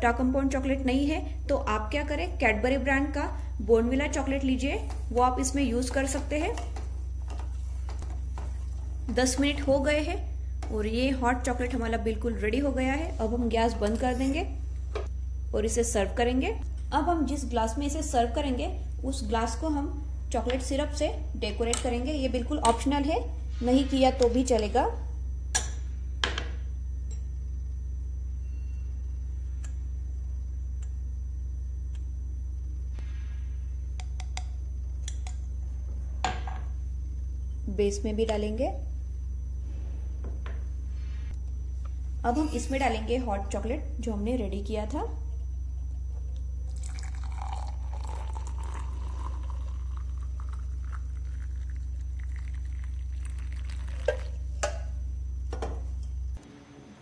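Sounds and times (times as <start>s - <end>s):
low electrical hum: 0.0s - 57.0s
liquid pouring into a glass: 46.6s - 54.5s.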